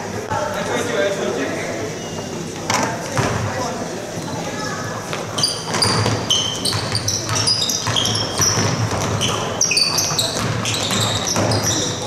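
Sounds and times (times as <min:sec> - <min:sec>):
crowd voices: 0:00.0 - 0:12.0
sneakers squeaking: 0:04.1 - 0:12.0
basketball bouncing: 0:05.6 - 0:12.0.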